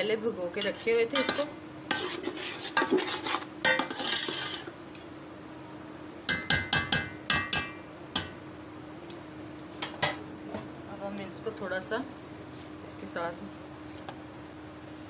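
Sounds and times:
faint steady hum: 0.0s - 15.0s
spoon scraping a metal pot: 0.6s - 4.7s.

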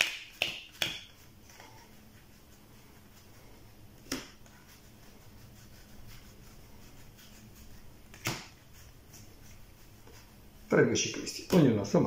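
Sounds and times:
cards sliding and flicking: 4.0s - 4.4s, 8.0s - 8.6s.

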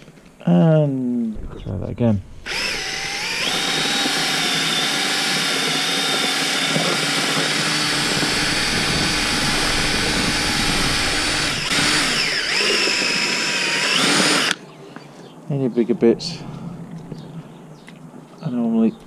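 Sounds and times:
drill mixer whining: 2.4s - 14.6s.

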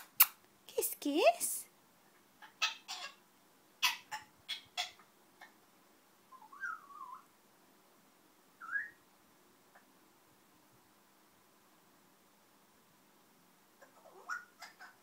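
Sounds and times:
parrot whistling: 6.3s - 7.2s, 8.6s - 9.0s.

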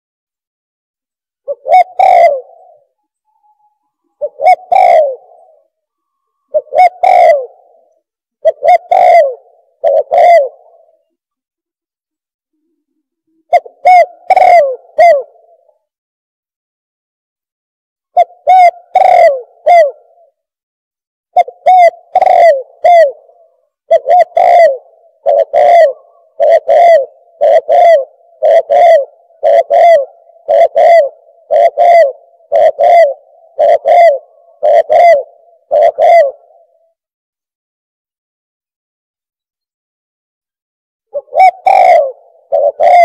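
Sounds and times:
dove cooing: 1.4s - 11.2s, 13.3s - 15.8s, 18.2s - 20.4s, 21.4s - 37.0s, 41.1s - 43.0s.

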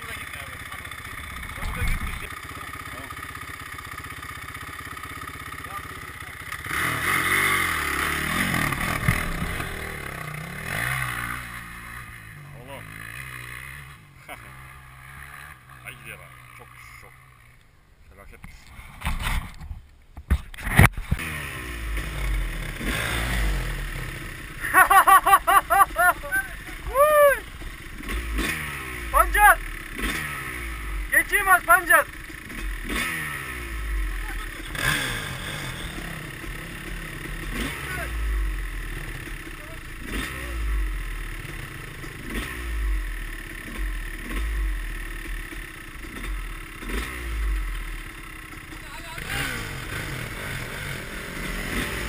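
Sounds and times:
dirt bike engine revving: 0.0s - 17.6s, 20.6s - 52.0s
low engine rumble: 21.8s - 32.9s.

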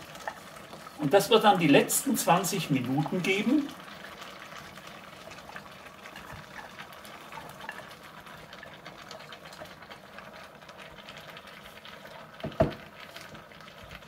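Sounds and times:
stew bubbling: 0.0s - 14.0s.

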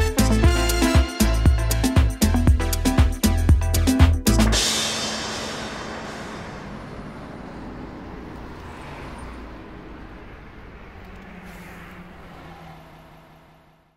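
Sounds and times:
distant traffic hum: 4.6s - 13.9s.

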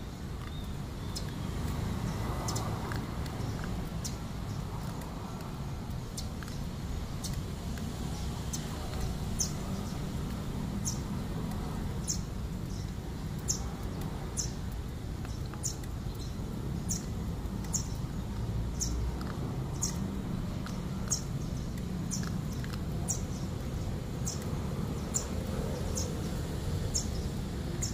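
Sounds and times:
bird chirping: 0.0s - 5.0s, 12.0s - 27.9s.

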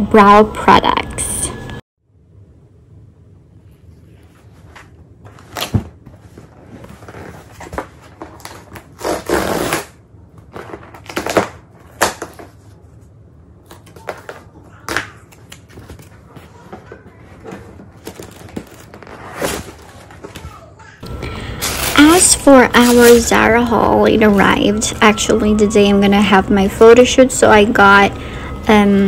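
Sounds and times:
cardboard tearing: 6.8s - 12.4s.

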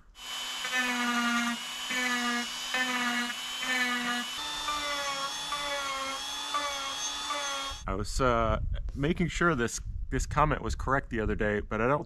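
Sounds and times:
rotary carving tool whining: 0.0s - 7.9s.

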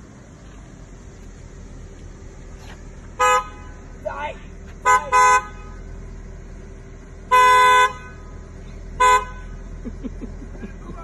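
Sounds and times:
car horn honking: 3.1s - 5.8s, 7.2s - 9.7s.

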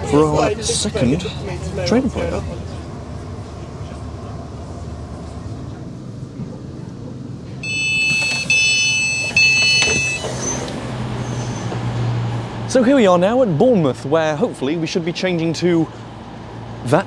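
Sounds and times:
electric train rumble: 0.0s - 17.0s
door alert tone beeping: 7.6s - 10.6s
train door opening bursts: 7.6s - 11.8s.

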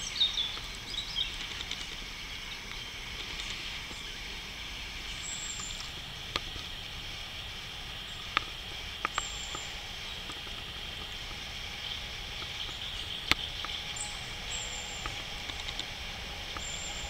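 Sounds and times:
outdoor background noise: 0.0s - 17.0s
sharp clicks: 0.2s - 4.0s, 7.8s - 17.0s.

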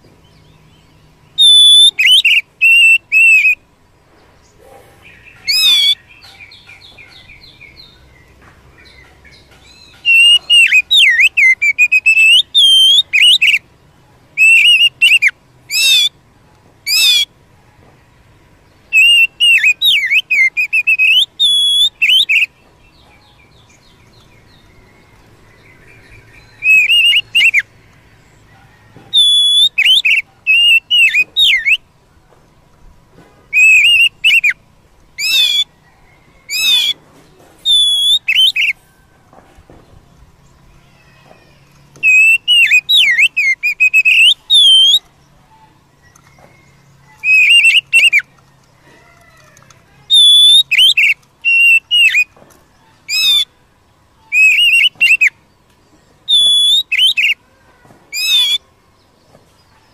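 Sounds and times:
faint bird twittering: 0.0s - 17.8s, 18.7s - 31.9s, 33.2s - 39.2s, 39.8s - 59.9s
bird singing clear whistles: 0.6s - 3.6s, 5.0s - 8.0s, 8.8s - 13.6s, 14.4s - 16.1s, 16.9s - 17.3s, 18.8s - 27.7s, 28.8s - 31.9s, 33.5s - 34.6s, 35.2s - 37.0s, 37.6s - 38.8s, 41.9s - 48.4s, 50.0s - 53.5s, 54.2s - 55.4s, 56.2s - 57.4s, 58.1s - 58.6s.

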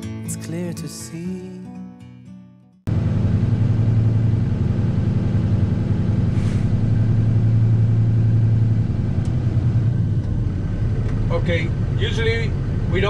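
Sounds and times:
diesel truck engine revving: 2.9s - 13.0s.

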